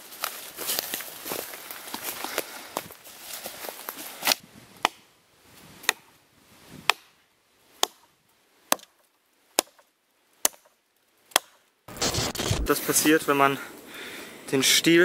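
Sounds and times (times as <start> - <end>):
hatchet chopping log: 4.8 - 5.0, 5.8 - 6.1, 6.8 - 7.2, 7.8 - 8.1, 8.7 - 10.7, 11.3 - 11.6.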